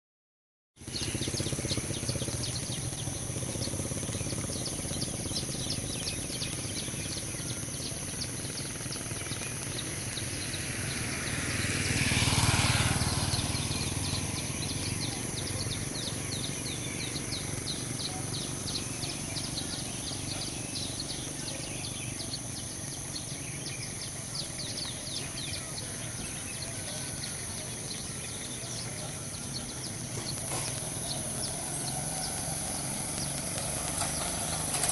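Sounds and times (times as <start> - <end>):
vehicle passing: 0.8 - 34.9
steady background hiss: 0.9 - 34.9.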